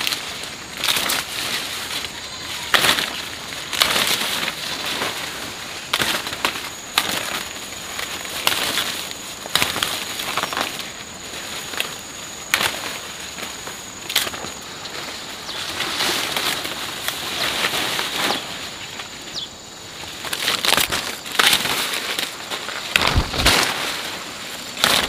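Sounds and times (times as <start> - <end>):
crunchy snaps: 0.0 - 19.1, 20.0 - 25.0
dry leaves rustling: 0.0 - 25.0.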